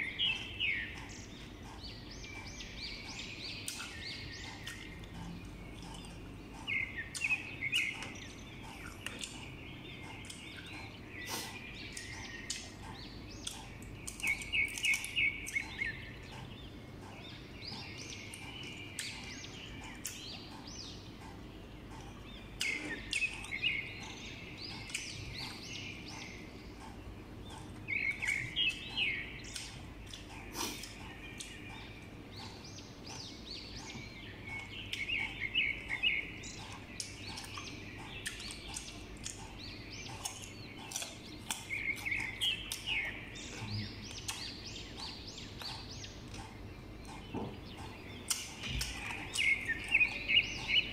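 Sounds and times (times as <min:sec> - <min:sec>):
bird chirping: 0:00.0 - 0:50.9
chewing and crunching: 0:00.0 - 0:50.9.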